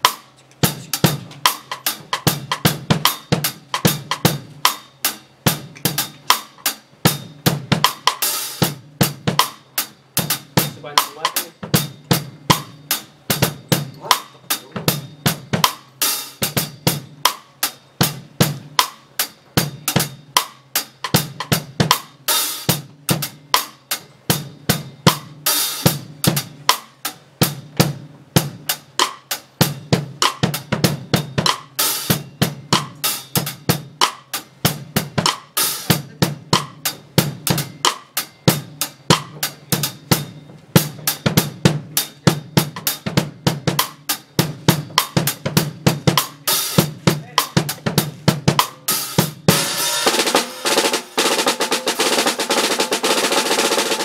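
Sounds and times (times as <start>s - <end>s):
kick and snare drum strokes: 0.0s - 54.0s
cymbal crashes: 49.0s - 52.1s.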